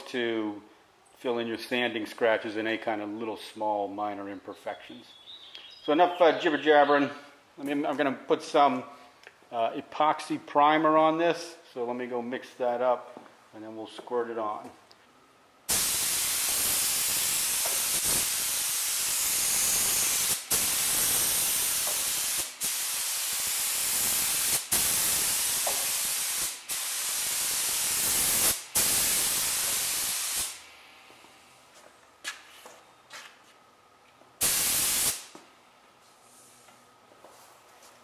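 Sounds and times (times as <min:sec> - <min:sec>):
spray gun hissing: 0:15.7 - 0:30.6, 0:34.4 - 0:35.4.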